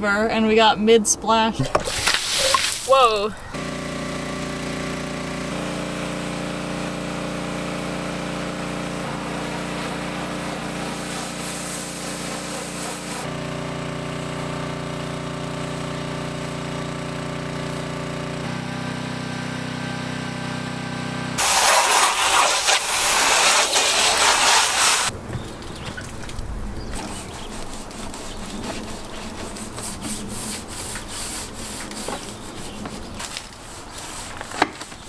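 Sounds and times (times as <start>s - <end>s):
high-pressure water spray hiss: 1.8s - 3.0s, 5.5s - 13.3s, 21.4s - 25.1s
small engine running: 3.5s - 25.1s.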